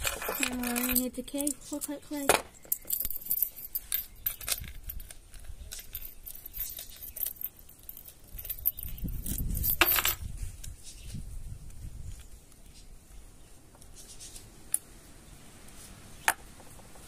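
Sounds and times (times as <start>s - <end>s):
small metal hardware clinking: 0.0s - 10.7s.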